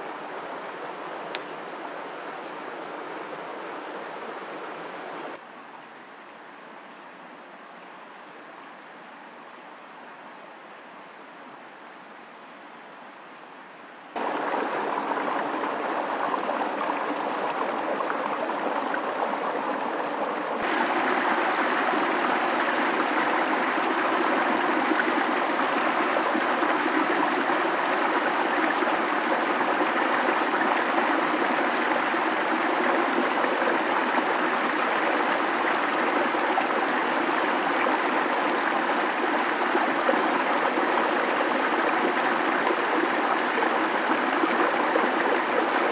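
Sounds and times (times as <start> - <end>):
running water rushing: 14.2 - 45.9.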